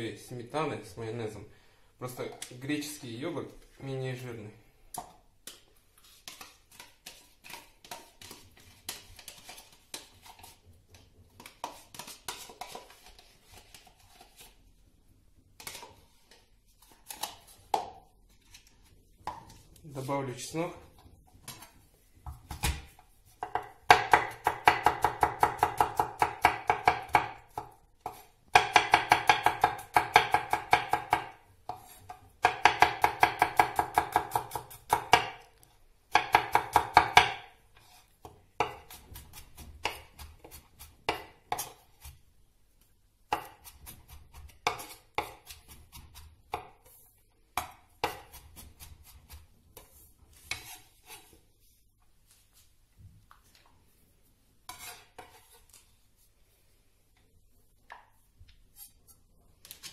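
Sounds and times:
knife chopping on wooden board: 22.3 - 35.5, 36.1 - 37.5, 38.2 - 42.2, 47.6 - 49.4.

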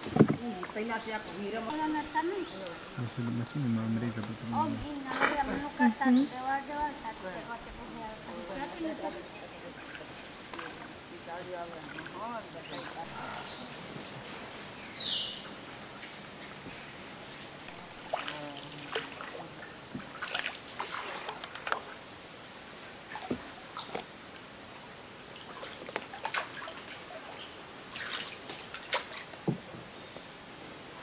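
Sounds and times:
light knocks and clicks: 0.0 - 0.5
water trickling and sloshing: 0.0 - 3.0, 4.6 - 14.4, 15.9 - 22.1, 23.0 - 24.1, 25.4 - 29.9
high-pitched insect buzz: 0.0 - 13.8, 17.7 - 31.0.

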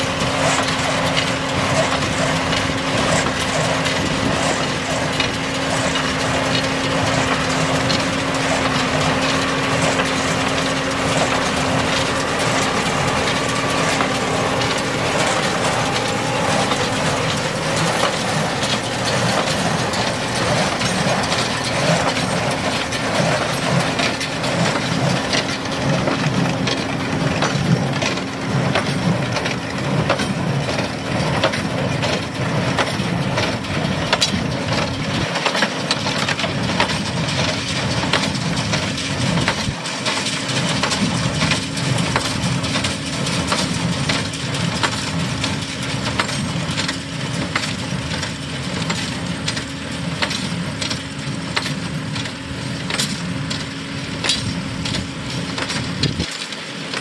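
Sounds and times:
tractor humming: 0.0 - 57.0
hay crunching: 6.4 - 27.3.

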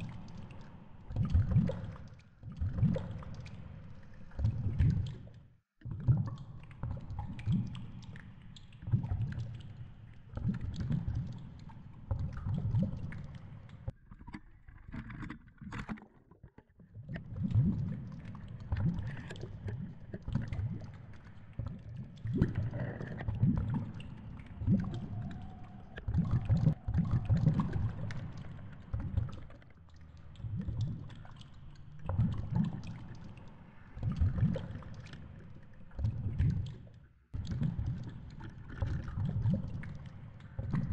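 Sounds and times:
water rumbling against housing: 23.4 - 29.5.

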